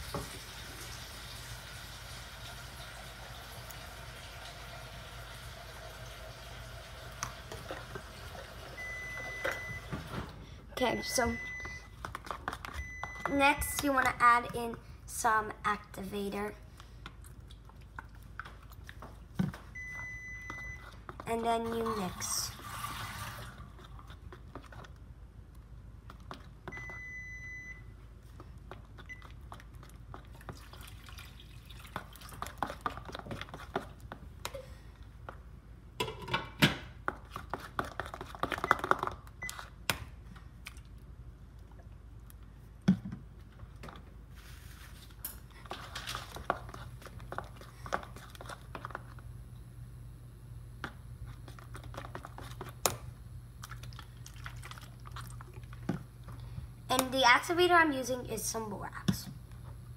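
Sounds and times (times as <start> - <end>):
slime squelching: 44.4 - 49.2, 51.2 - 57.8.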